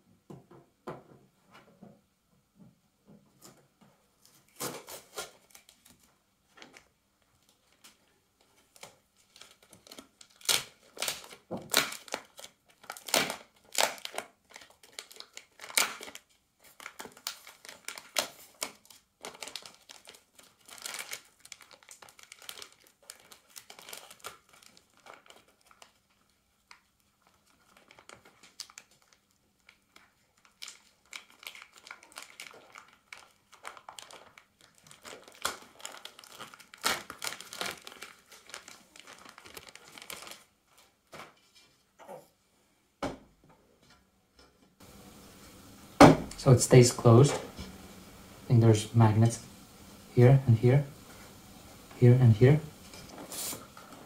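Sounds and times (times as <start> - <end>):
plastic film crinkling and tearing: 4.2 - 41.5, 49.6 - 54.0.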